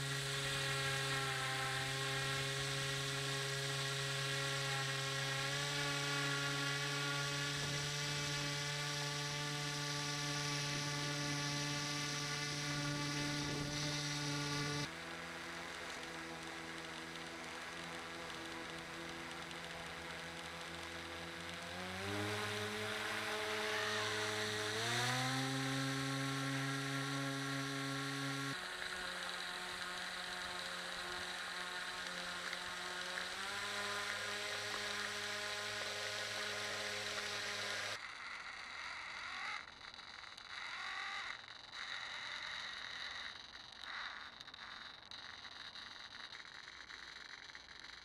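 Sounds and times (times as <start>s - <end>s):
model boat motor whining: 0.0s - 48.0s.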